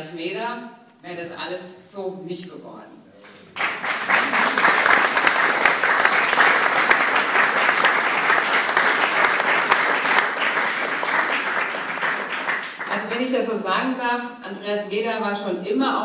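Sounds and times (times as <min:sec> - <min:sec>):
audience applauding: 0:03.3 - 0:13.0.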